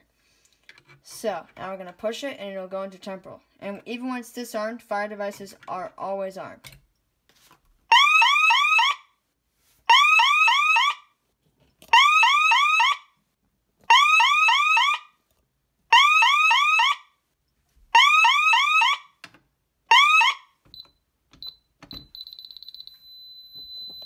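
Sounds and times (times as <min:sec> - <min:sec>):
warbling fire alarm siren: 0:07.9 - 0:09.1, 0:09.9 - 0:11.1, 0:11.9 - 0:13.1, 0:13.9 - 0:15.2, 0:15.9 - 0:17.2, 0:17.9 - 0:19.2, 0:19.9 - 0:20.6
keypad beeps: 0:20.8 - 0:24.0.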